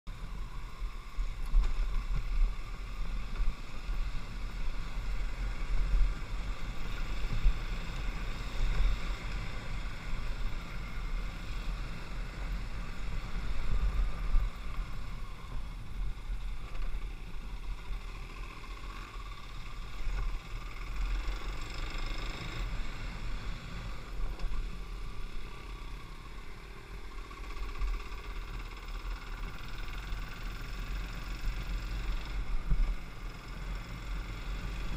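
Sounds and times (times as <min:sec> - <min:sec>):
motorcycle engine running: 0:00.1 - 0:34.9
wind rumble on microphone: 0:32.4 - 0:33.1.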